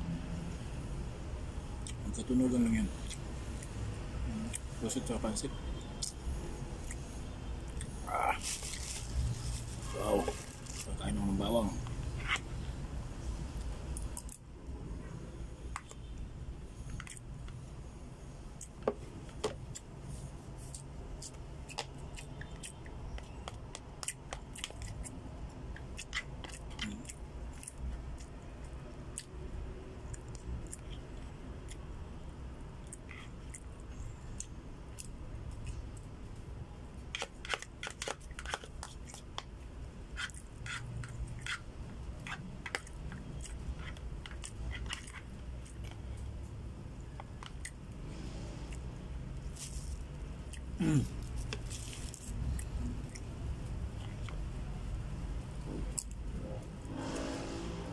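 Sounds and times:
chewing: 20.7 - 25.2, 25.8 - 28.3, 42.2 - 46.3
spoon scraping plastic container: 37.2 - 39.2.

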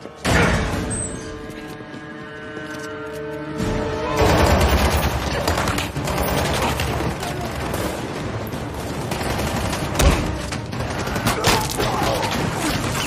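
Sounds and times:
heavy gunfire: 4.2 - 13.0.

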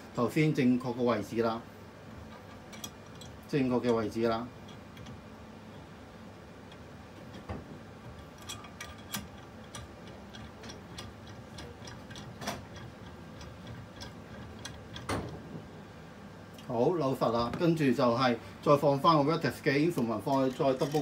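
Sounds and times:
metal parts clicking: 2.1 - 5.9, 6.6 - 15.5, 20.2 - 21.0.

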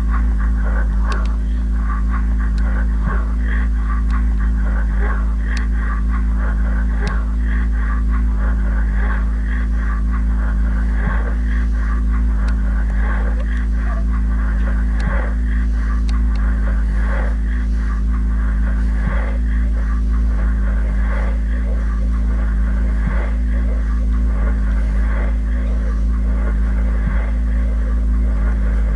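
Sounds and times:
deep electronic drone: 0.0 - 28.9
flickering static noise: 0.0 - 28.9.

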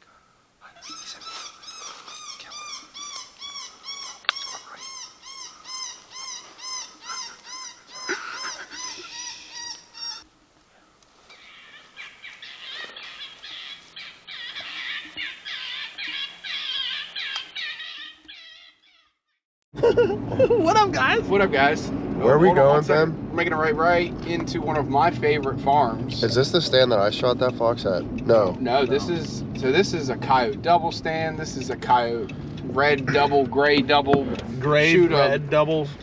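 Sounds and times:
high animal calls: 0.6 - 10.3, 11.3 - 19.2
high chatter of calls: 0.6 - 10.3, 11.3 - 18.9, 20.7 - 36.0.

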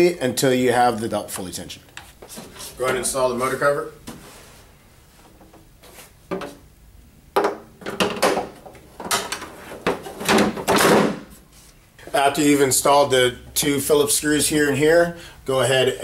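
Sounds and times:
plastic clattering and scraping: 7.8 - 11.0.

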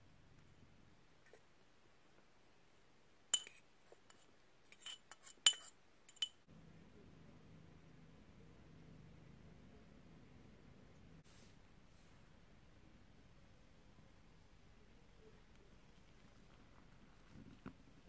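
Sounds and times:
metal fork clinking on glass bowl: 3.3 - 3.6, 4.7 - 6.4.

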